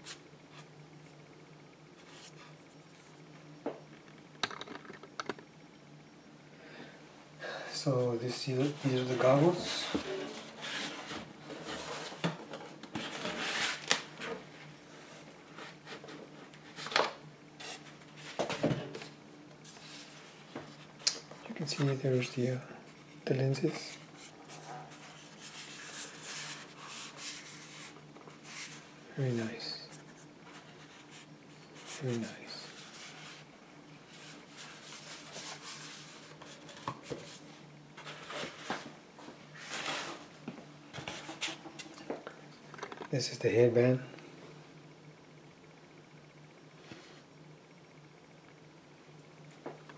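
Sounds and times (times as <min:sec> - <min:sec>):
rustling and rubbing in hands: 0:21.6 - 0:29.0.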